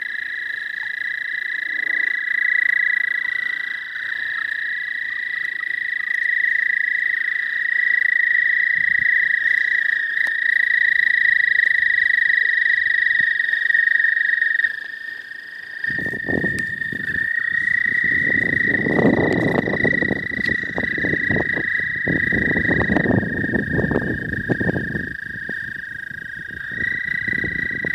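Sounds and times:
toads trilling: 0.0s - 27.9s
footsteps crunching on stones: 15.1s - 19.6s.

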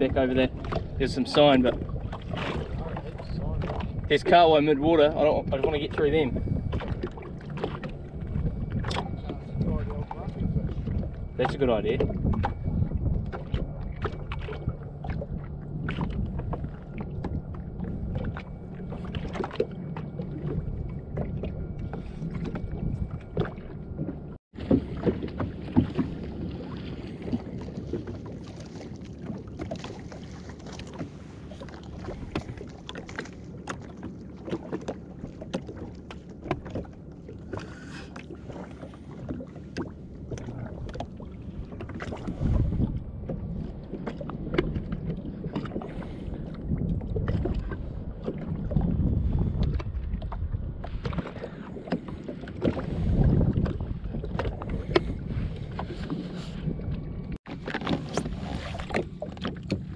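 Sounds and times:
small waves lapping against hull: 0.0s - 59.9s
wind rumble on microphone: 0.0s - 59.9s.

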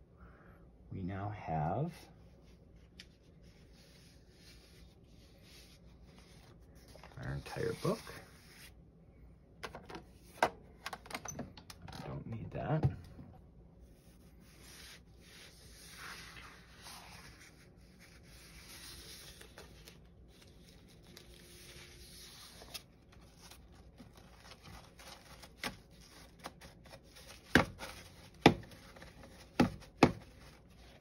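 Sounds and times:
paper pages rustling: 2.8s - 8.7s, 14.4s - 31.0s.

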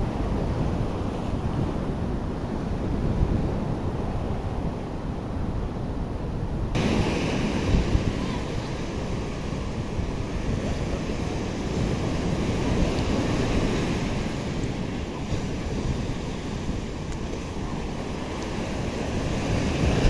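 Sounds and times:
wind rumbling on microphone: 0.0s - 20.0s
surf washing onto sandy beach: 6.8s - 20.0s.

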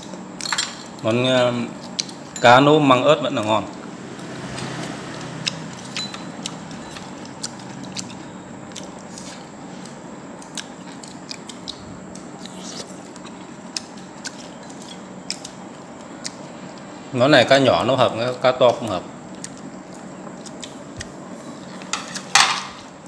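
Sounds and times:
steady background hum: 0.0s - 23.0s.

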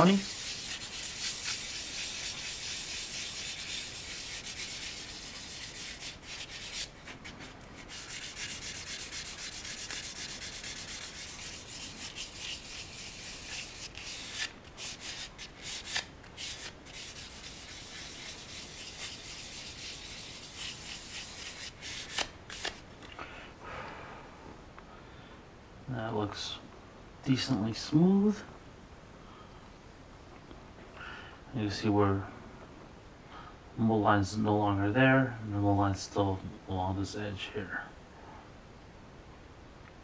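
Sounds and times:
sanding sponge scratching resin: 0.0s - 22.8s.

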